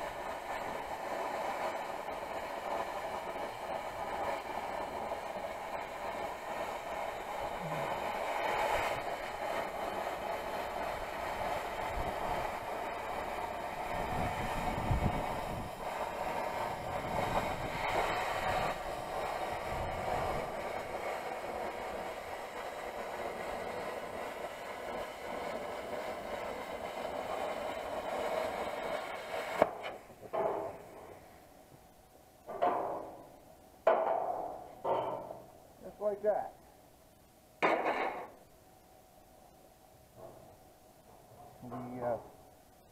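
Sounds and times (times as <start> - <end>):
plasma cutter hissing: 0.0 - 30.9.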